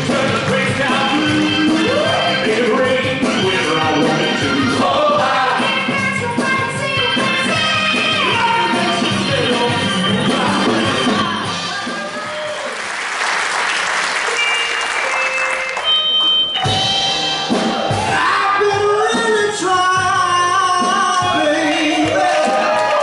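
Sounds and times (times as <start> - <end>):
vocal ensemble singing with band: 0.0 - 6.8, 7.4 - 11.5, 18.1 - 22.8
audience applauding: 11.6 - 16.8, 21.9 - 23.0.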